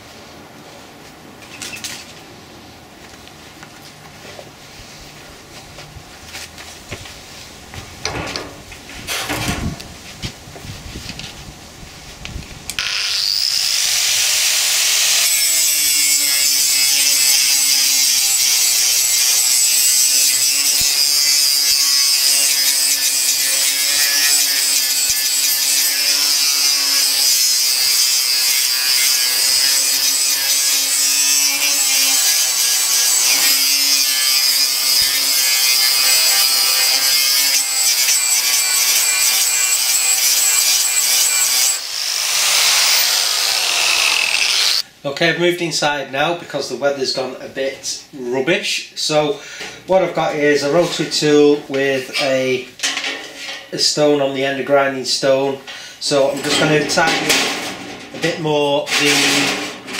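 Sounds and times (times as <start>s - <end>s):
angle grinder grinding metal: 12.7s - 44.8s, 51.9s - 52.6s, 56.2s - 59.9s.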